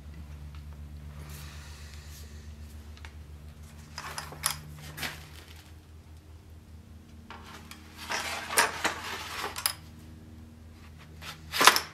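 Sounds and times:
sword scraping into scabbard: 7.4s - 9.8s, 11.2s - 11.9s.

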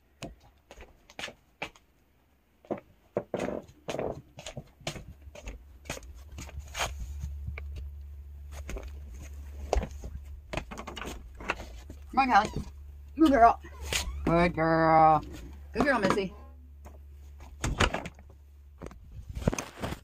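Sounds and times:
low steady hum: 3.4s - 20.0s.

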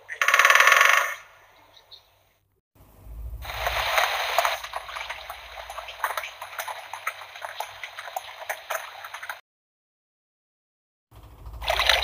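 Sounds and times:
rain patter from small speaker: 3.4s - 9.4s.

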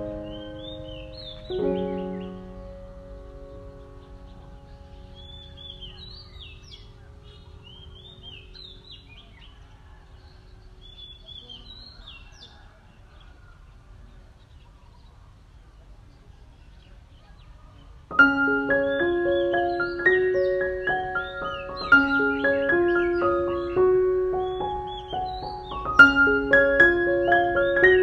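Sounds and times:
struck keyboard-like music: 0.0s - 8.8s, 18.1s - 28.0s
birds chirping: 0.0s - 28.0s.

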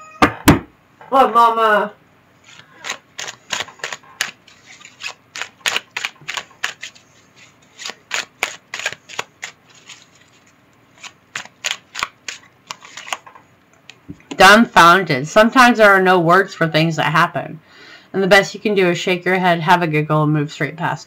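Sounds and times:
cards being shuffled: 2.4s - 14.1s.

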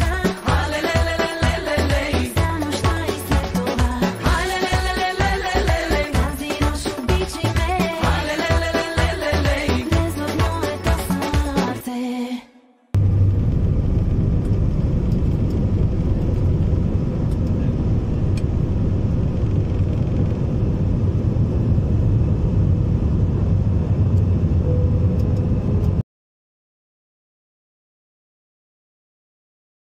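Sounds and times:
jet engines and airflow rumble: 13.0s - 26.0s.

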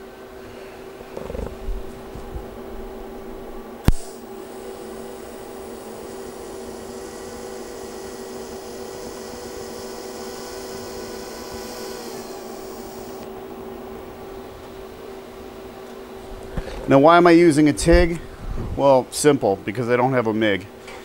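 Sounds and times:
steady hum: 0.0s - 21.0s
welding arc hissing buzz: 3.1s - 15.4s
welding arc striking crack: 3.8s - 4.2s.

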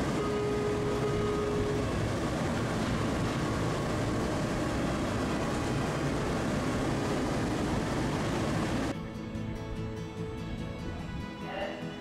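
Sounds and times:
streetcar rumble: 0.0s - 9.0s.

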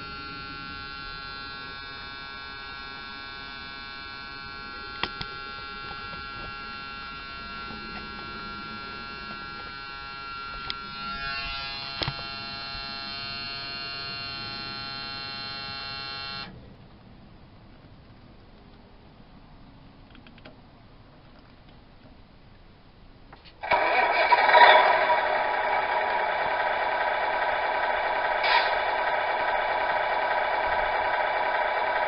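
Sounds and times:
small electric pump whine: 0.0s - 16.6s, 23.6s - 32.0s
sharp clicks: 20.1s - 20.6s.

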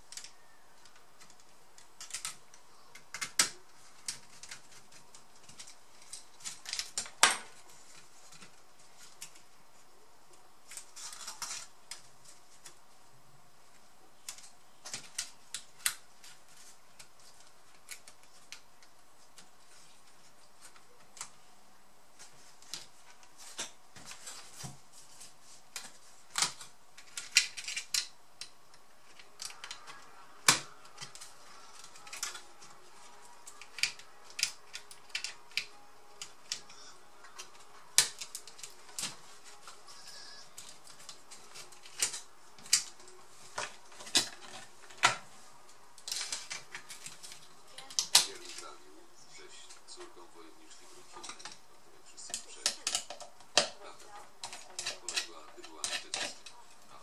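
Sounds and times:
plastic laptop parts clicking: 0.0s - 9.5s, 14.2s - 21.4s, 25.7s - 45.2s, 52.2s - 53.8s.

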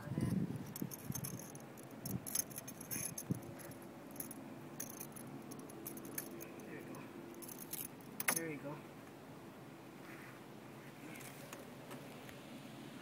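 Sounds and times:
metal hooks jingling: 0.6s - 8.6s.

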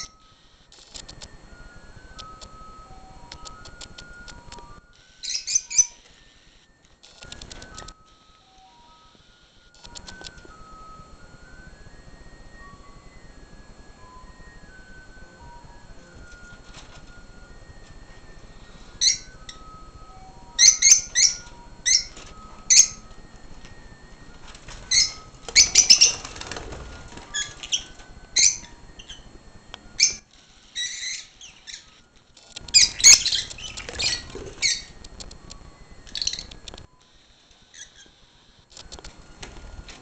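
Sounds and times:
lovebirds chirping: 5.2s - 6.1s, 18.4s - 23.3s, 24.7s - 35.0s, 36.0s - 36.6s.

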